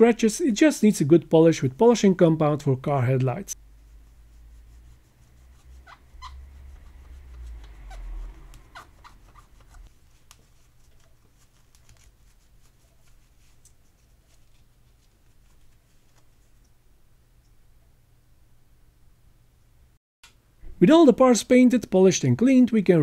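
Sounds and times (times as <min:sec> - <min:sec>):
cloth rubbing plastic: 0:03.5 - 0:16.6.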